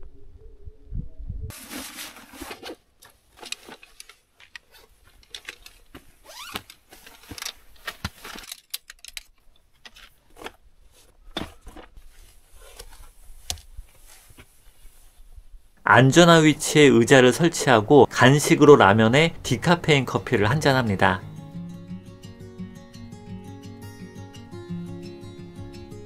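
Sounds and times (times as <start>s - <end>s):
camping gear clicking and rattling: 1.5s - 14.8s.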